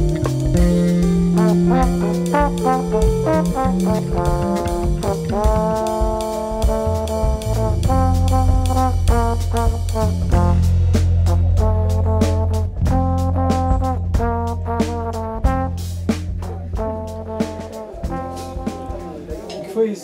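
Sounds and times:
electric bass: 0:00.0 - 0:18.9
trombone melody: 0:00.0 - 0:19.6
drum kit: 0:00.0 - 0:19.7
keyboard: 0:00.0 - 0:20.0.

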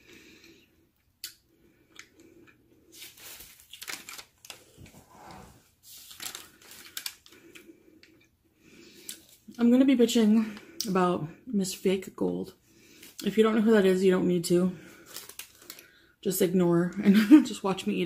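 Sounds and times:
person chewing food: 0:00.0 - 0:04.7.

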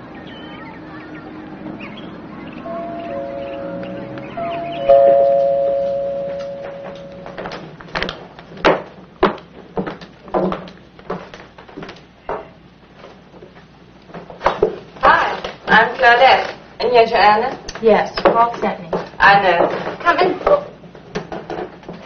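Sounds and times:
two-tone doorbell chime: 0:02.7 - 0:07.4
footsteps: 0:02.7 - 0:16.6.

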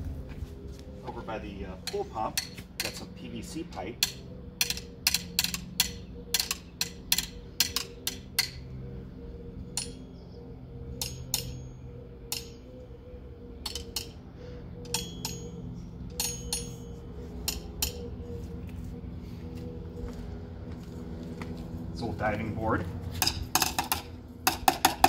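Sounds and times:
steady low hum: 0:00.0 - 0:25.0
drumsticks tapping on plastic pipes: 0:01.8 - 0:03.1, 0:04.0 - 0:08.6.

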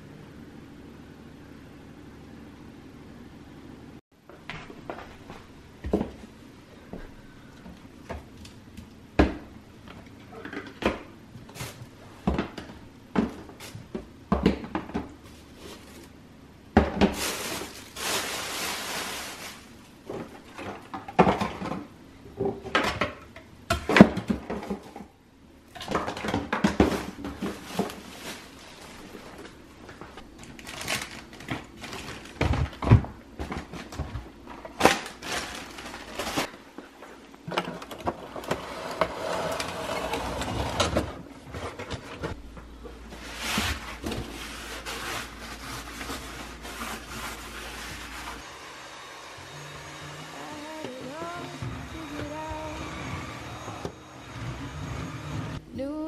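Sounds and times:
plastic bottles knocking and clattering: 0:16.8 - 0:25.0, 0:25.8 - 0:28.5, 0:30.5 - 0:36.5.

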